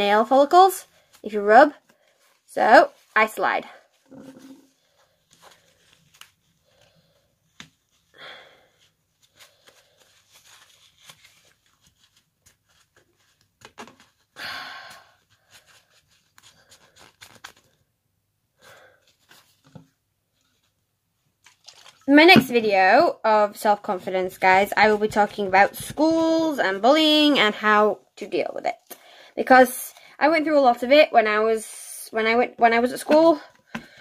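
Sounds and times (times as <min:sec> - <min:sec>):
tissue swishes: 0:00.6 - 0:06.9, 0:08.8 - 0:13.6
tissue rustling on fingernails: 0:00.6 - 0:14.3, 0:15.2 - 0:17.8.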